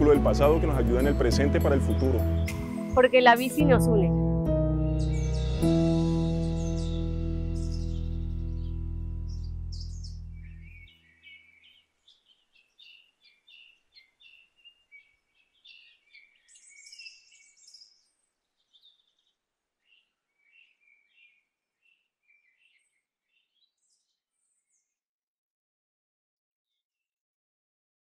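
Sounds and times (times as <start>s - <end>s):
birds chirping: 0.0s - 4.1s, 4.8s - 24.9s
held music chord: 0.0s - 10.7s.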